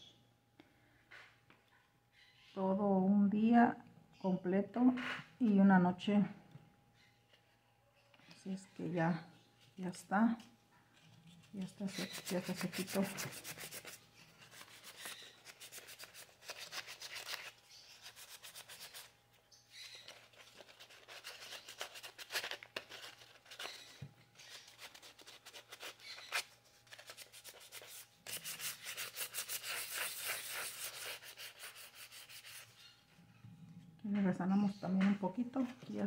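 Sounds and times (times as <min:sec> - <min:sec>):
sandpaper rubbing on wood: 0:12.0 - 0:19.1, 0:27.1 - 0:32.7.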